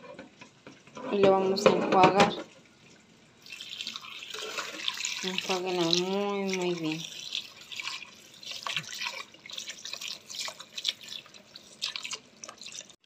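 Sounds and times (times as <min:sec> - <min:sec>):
water splashing and dripping: 0:02.9 - 0:13.0.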